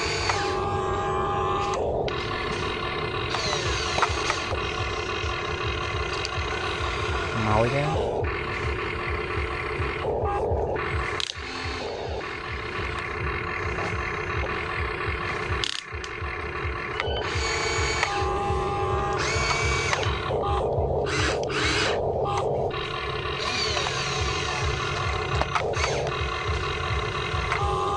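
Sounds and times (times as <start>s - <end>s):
toy excavator motors whirring: 0.0s - 27.9s.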